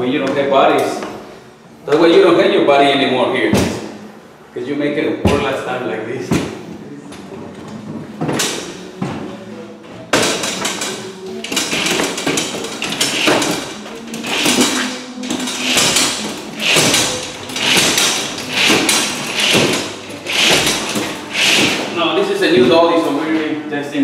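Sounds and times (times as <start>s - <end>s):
hand truck thudding on stairs: 10.1s - 22.0s.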